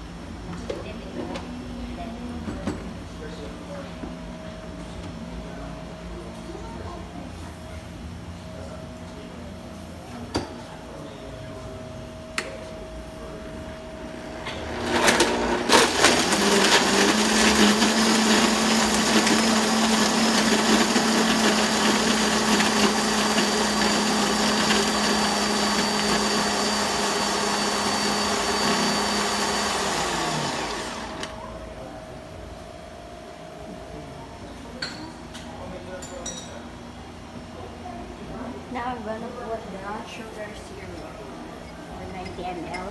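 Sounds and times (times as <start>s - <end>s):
blender running: 14.5s - 31.4s.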